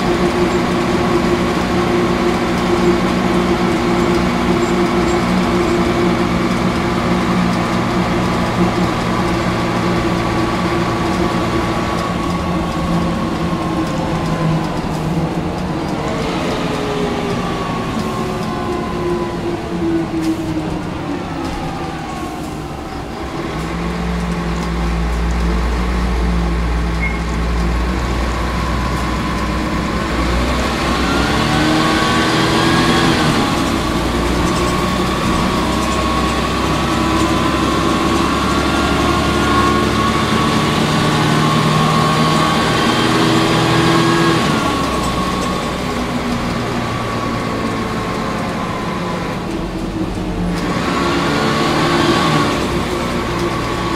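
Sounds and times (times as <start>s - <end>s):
bus diesel engine accelerating: 0.0s - 53.9s.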